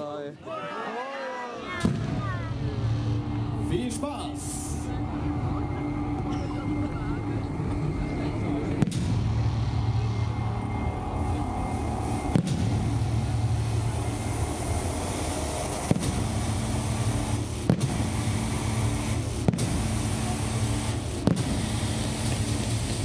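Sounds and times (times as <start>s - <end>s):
firework bangs: 1.7s - 4.8s, 8.5s - 23.0s
steady low rumble: 1.8s - 23.0s.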